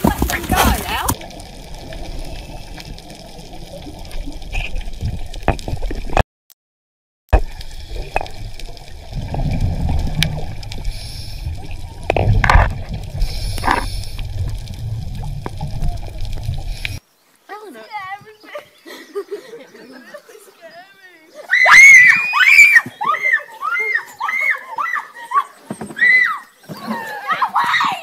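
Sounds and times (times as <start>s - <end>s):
underwater bubbles gurgling: 0.0s - 6.2s, 7.4s - 17.0s.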